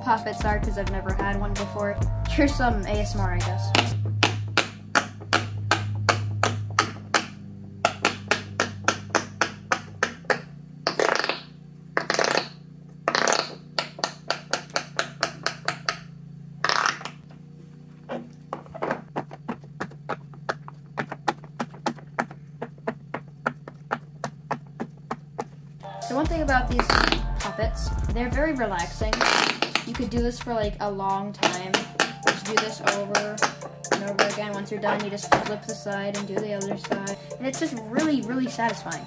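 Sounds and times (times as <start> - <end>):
pop-it fidget toy popping: 3.7 - 16.0.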